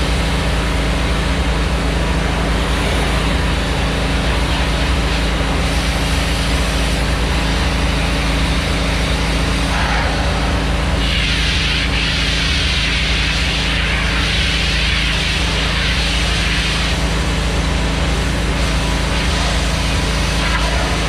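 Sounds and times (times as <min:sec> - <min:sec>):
engine running: 0:00.0 - 0:21.0
pressure washer jet hissing: 0:04.3 - 0:17.5.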